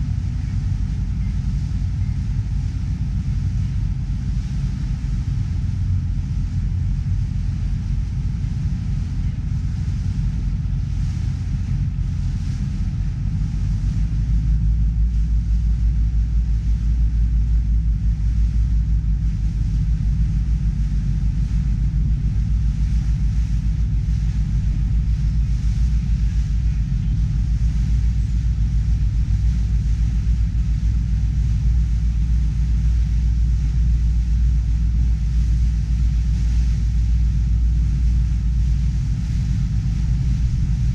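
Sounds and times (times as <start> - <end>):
ferry engines rumbling: 0.0 - 40.9.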